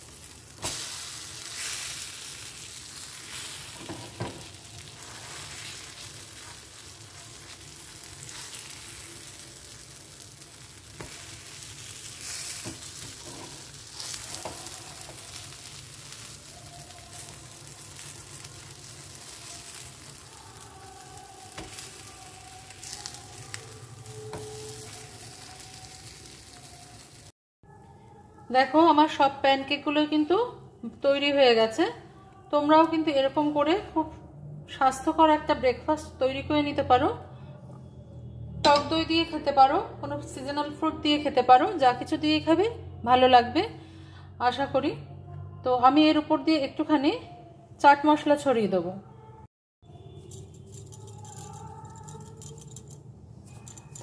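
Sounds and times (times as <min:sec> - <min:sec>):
pancakes sizzling in a pan: 0:00.0 - 0:27.3
spatula scraping a pan: 0:11.0 - 0:16.4.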